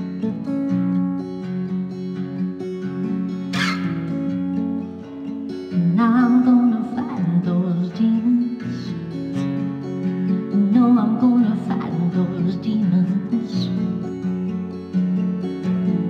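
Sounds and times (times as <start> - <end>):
woman singing: 0.0 - 1.1, 5.5 - 9.2, 10.3 - 14.1
acoustic guitar strummed: 0.0 - 16.0.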